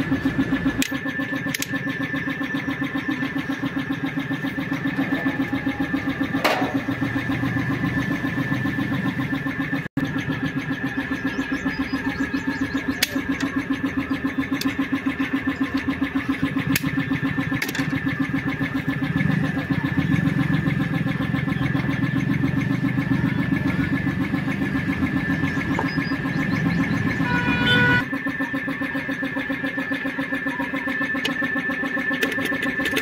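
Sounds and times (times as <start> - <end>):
small engine running: 0.0 - 33.0
sharp clicks: 0.7 - 1.8, 12.8 - 13.6.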